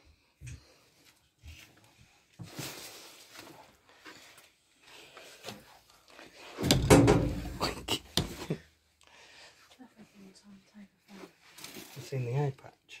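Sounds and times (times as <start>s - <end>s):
knocking and scraping: 6.4s - 8.6s
quiet rustling: 9.5s - 12.6s.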